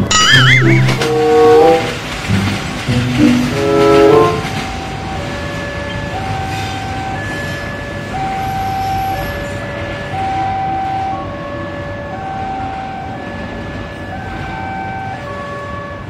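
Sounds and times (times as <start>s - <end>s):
loud rising tone: 0.0s - 4.6s
two-note alternating tone: 0.0s - 4.7s
freight train rumbling: 0.0s - 16.0s.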